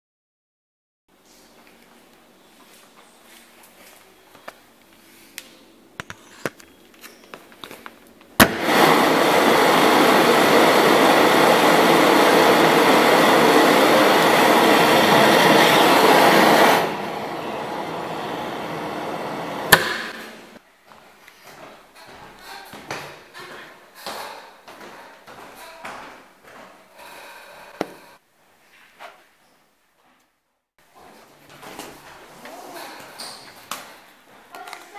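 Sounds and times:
vacuum suction rushing: 8.4s - 20.6s.

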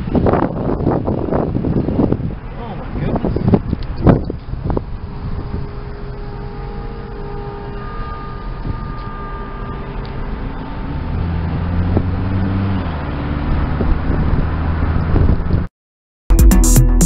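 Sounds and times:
car road and engine noise: 0.0s - 15.7s
background music with bass line: 16.3s - 17.0s.

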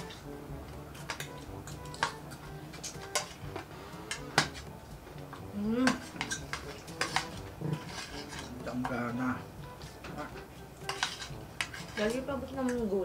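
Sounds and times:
cutlery clinking on plates: 1.0s - 3.4s, 4.1s - 4.6s, 5.8s - 9.2s, 10.0s - 12.8s.

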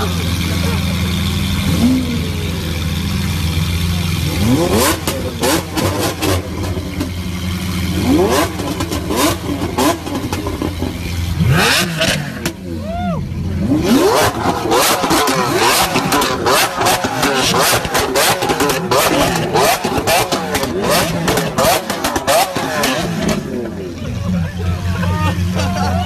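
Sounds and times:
car engine idling: 0.0s - 26.0s
exhaust cracks: 13.4s - 26.0s.

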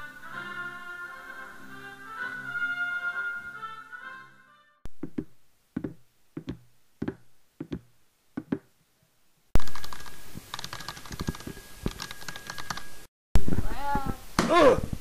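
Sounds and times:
walking footsteps: 4.9s - 8.7s
rapid clicks clattering: 9.6s - 12.9s.

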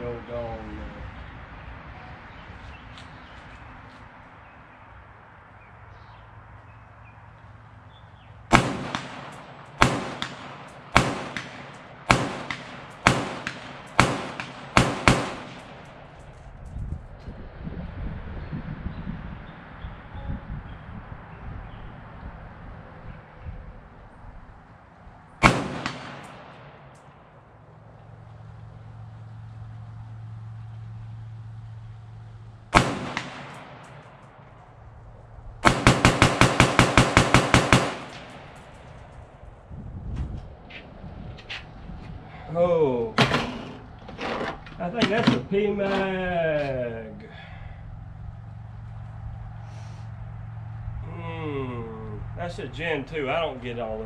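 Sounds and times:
rifle shots: 8.5s - 16.3s, 25.4s - 27.2s, 32.7s - 34.6s, 35.6s - 39.1s.

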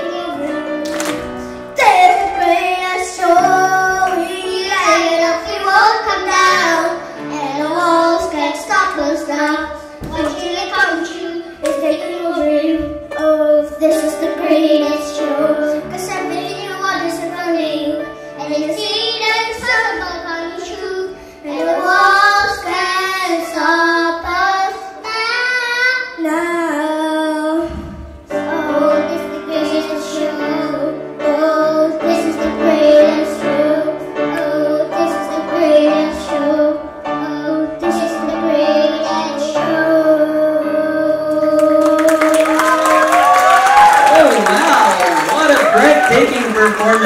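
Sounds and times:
children singing a duet: 0.0s - 44.8s
grand piano accompaniment: 0.0s - 47.0s
applause: 0.8s - 1.2s, 41.8s - 47.0s.

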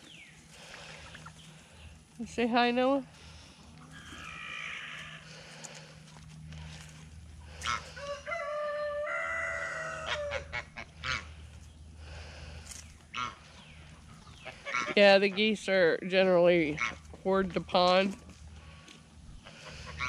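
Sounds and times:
geese honking: 3.3s - 5.9s, 6.6s - 11.6s, 13.1s - 15.8s, 16.6s - 17.2s, 19.4s - 20.0s.

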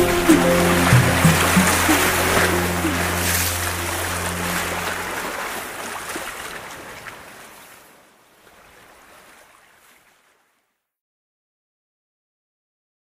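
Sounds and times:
low held music notes: 0.0s - 6.0s
flowing water and waves: 0.0s - 10.8s.

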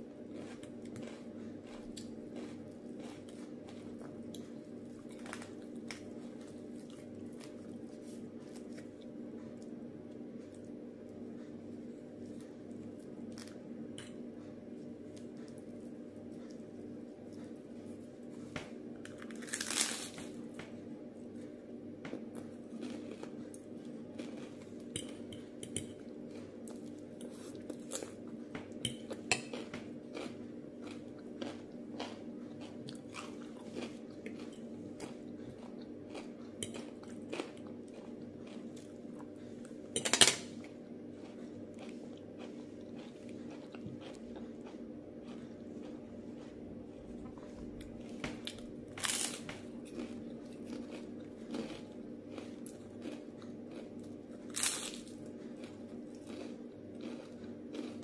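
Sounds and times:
crunchy chewing: 0.0s - 58.0s
steady low hum: 0.0s - 58.0s
rice cake crunching bites: 0.2s - 9.1s, 19.0s - 20.4s, 29.1s - 39.4s, 40.7s - 58.0s.

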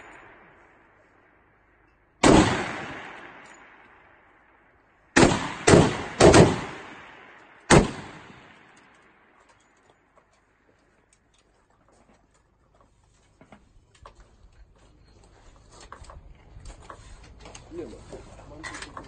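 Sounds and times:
rifle shots echoing: 2.2s - 4.5s, 5.1s - 9.3s.

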